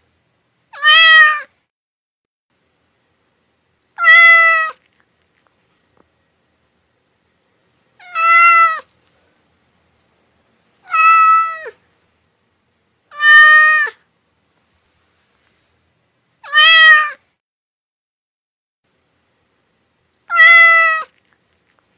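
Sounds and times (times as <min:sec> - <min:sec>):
cat meowing: 0:00.7 - 0:01.5, 0:04.0 - 0:04.8, 0:08.0 - 0:08.9, 0:10.8 - 0:11.8, 0:13.1 - 0:14.0, 0:16.4 - 0:17.2, 0:20.3 - 0:21.2.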